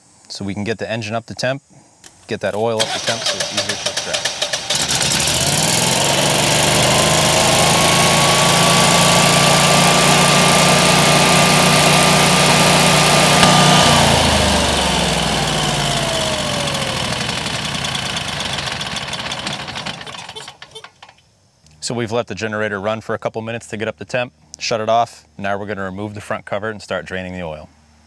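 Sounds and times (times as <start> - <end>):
generator whine: 2.2 - 22.0
generator engine running: 2.8 - 21.2.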